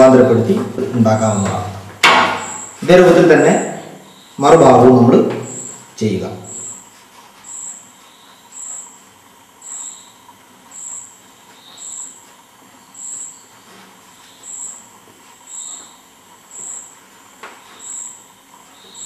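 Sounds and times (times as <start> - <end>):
cricket chirping: 3.9 - 4.6, 6.4 - 6.8, 9.6 - 12.2, 12.9 - 13.5, 14.3 - 17.0, 17.7 - 19.0.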